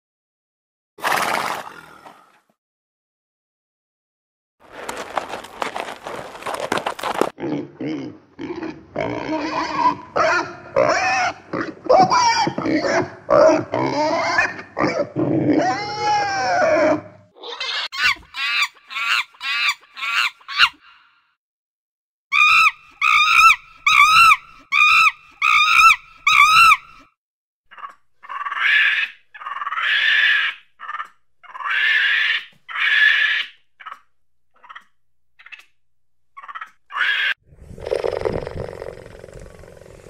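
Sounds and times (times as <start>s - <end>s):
macaques screeching: 15.7s - 20.8s, 22.3s - 27.0s, 27.7s - 34.0s, 36.4s - 37.4s
low rumbling animal growl: 37.5s - 40.0s.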